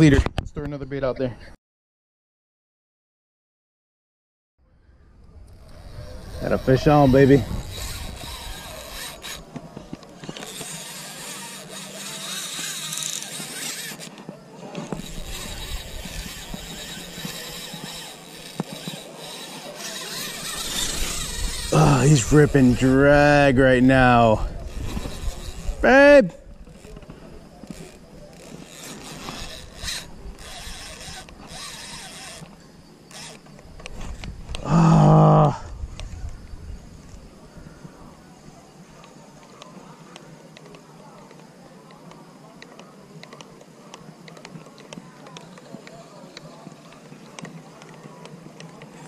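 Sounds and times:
fishing reel rasping: 5.4s - 14.2s, 14.8s - 33.5s.

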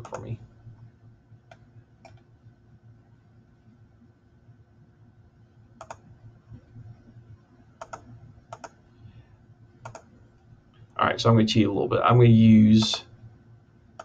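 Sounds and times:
computer mouse clicking: 0.0s - 0.3s, 1.5s - 2.3s, 5.8s - 6.1s, 7.8s - 8.8s, 9.8s - 10.1s
faint steady hum: 0.0s - 14.0s.

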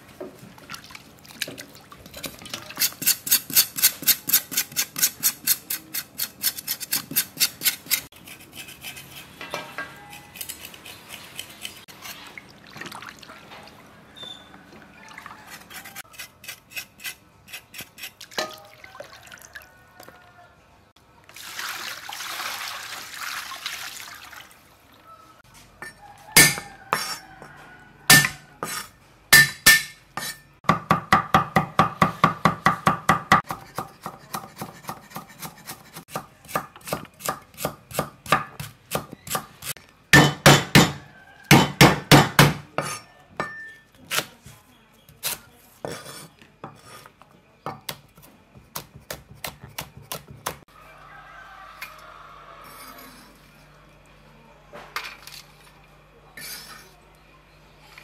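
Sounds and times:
water pouring over meat: 21.3s - 24.6s
cleaver chopping on wooden board: 40.2s - 42.9s.

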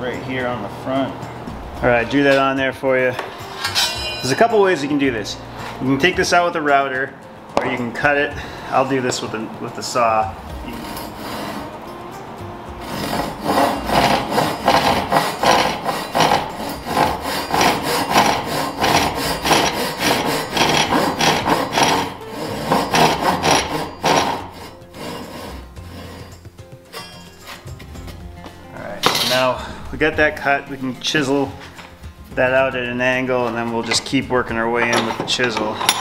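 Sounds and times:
hand saw cutting wood: 10.6s - 11.8s, 12.8s - 27.8s.

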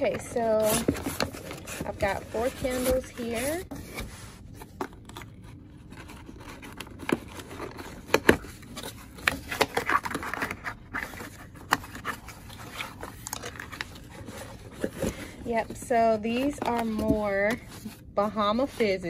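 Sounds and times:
cardboard scraping and rustling: 0.0s - 19.0s.

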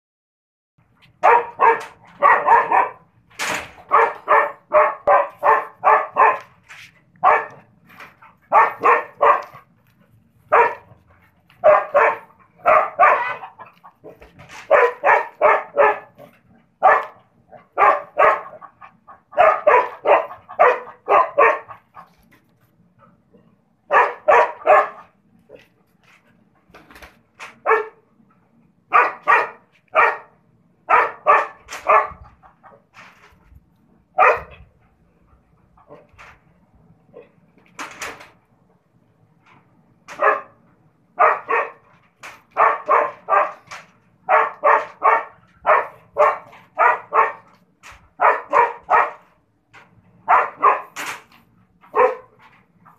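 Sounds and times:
dog barking: 1.2s - 3.1s, 3.8s - 6.5s, 7.2s - 7.7s, 8.5s - 9.7s, 10.5s - 22.1s, 23.9s - 25.1s, 27.6s - 28.0s, 28.9s - 32.2s, 34.2s - 34.6s, 40.2s - 40.6s, 41.2s - 41.8s, 42.5s - 47.5s, 48.2s - 49.3s, 50.2s - 51.0s, 51.9s - 52.4s.

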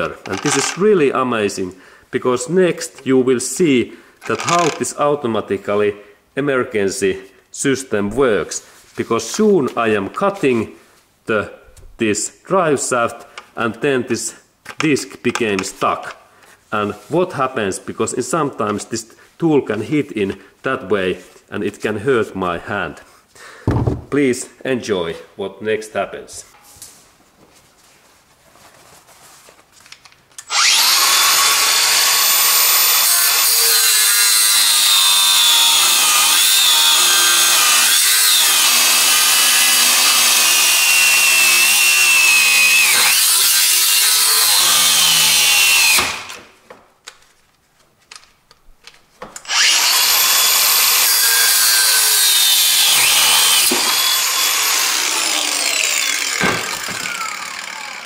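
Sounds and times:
angle grinder cutting metal: 0.2s - 0.9s, 4.2s - 4.9s, 30.4s - 46.4s, 49.4s - 58.0s.

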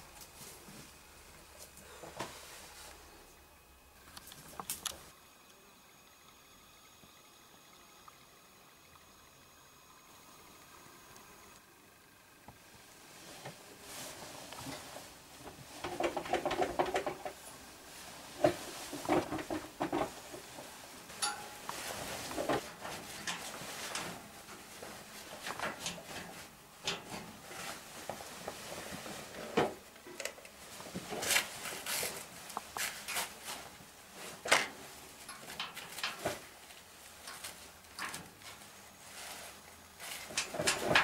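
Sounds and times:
clothing rustling: 13.0s - 29.9s
hands clanking on steel bars: 21.2s - 21.8s.

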